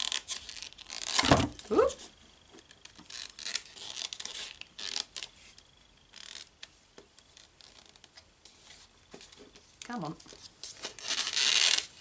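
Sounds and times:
paper band rustling and scraping: 0.0s - 12.0s.

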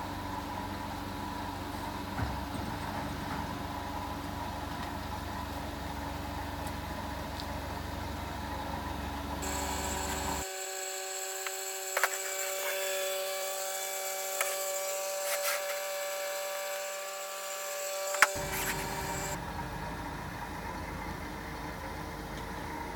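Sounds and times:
forklift engine idling: 0.0s - 10.4s, 18.3s - 22.9s.

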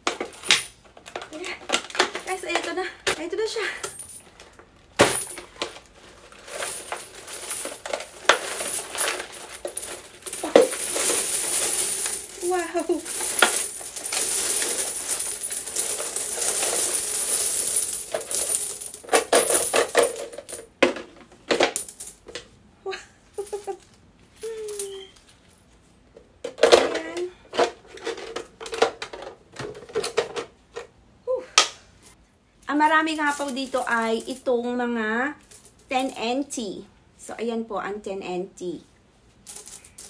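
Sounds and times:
coins pouring and jingling: 3.8s - 4.2s, 5.0s - 5.4s, 6.3s - 20.6s, 39.5s - 40.0s.

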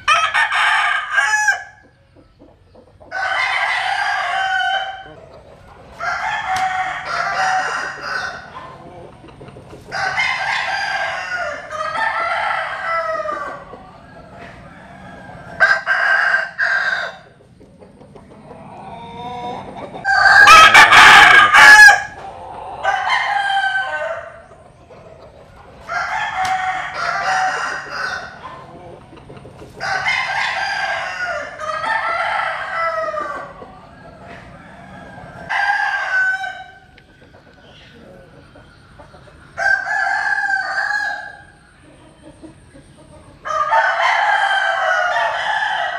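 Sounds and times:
rooster crowing: 0.0s - 1.8s, 3.1s - 5.2s, 6.0s - 8.7s, 9.9s - 13.7s, 14.6s - 17.3s, 18.8s - 24.4s, 25.9s - 28.7s, 29.8s - 33.7s, 34.5s - 37.0s, 39.6s - 41.6s, 43.4s - 45.9s.

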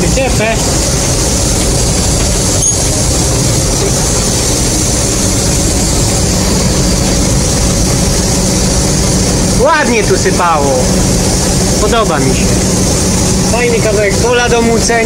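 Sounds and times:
auger unloading grain: 0.0s - 15.0s
diesel engine and threshing machinery: 0.0s - 15.0s.

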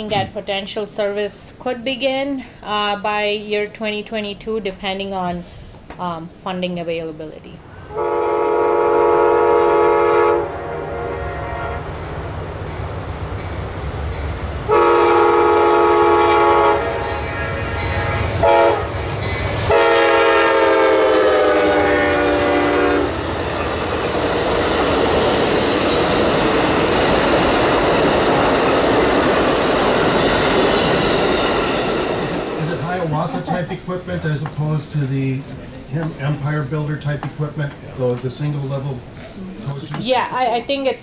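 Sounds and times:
locomotive horn blasts: 7.9s - 12.1s, 14.7s - 19.0s, 19.7s - 23.2s
train cars clattering on rails: 23.2s - 35.0s.

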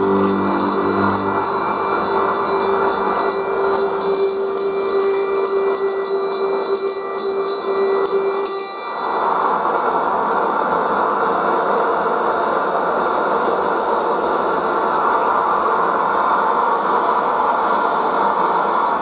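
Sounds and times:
held electronic tone: 0.0s - 8.6s.

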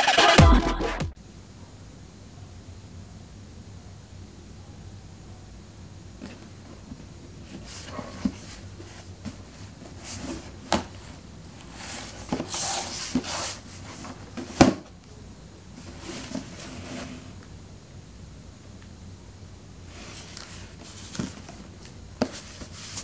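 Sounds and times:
box and lid scraping: 7.5s - 14.8s.

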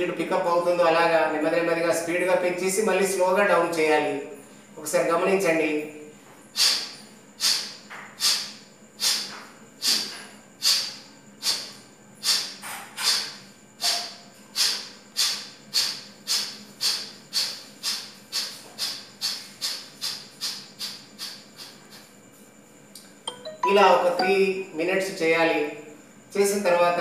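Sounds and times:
man's sharp exhalations through nose: 6.5s - 22.1s.

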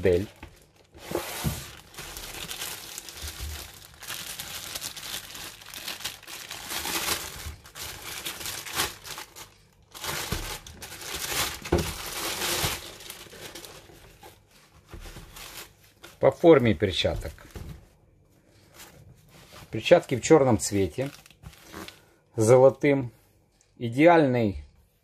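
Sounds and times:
plastic bag crinkling: 0.0s - 14.5s, 20.0s - 22.1s.

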